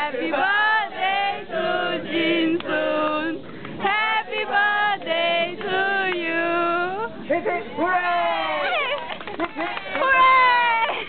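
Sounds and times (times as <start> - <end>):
group singing in unison: 0.0 - 7.1.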